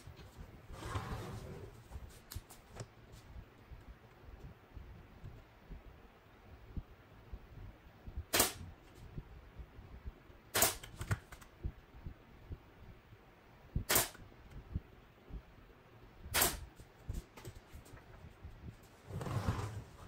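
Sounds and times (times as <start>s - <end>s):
nail gun shots: 8.3s - 8.6s, 10.5s - 11.2s, 13.9s - 14.2s, 16.3s - 16.7s.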